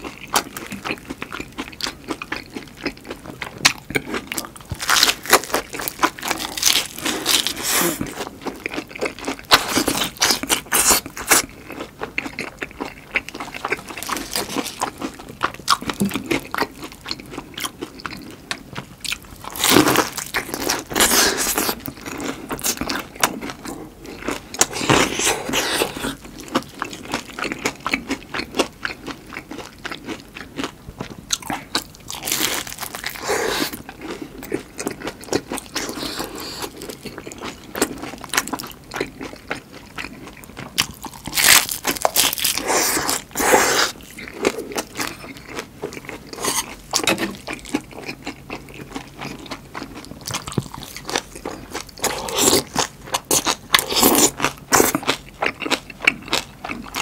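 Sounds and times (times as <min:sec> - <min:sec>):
crunching and chewing fried food: 0:00.0 - 0:57.0.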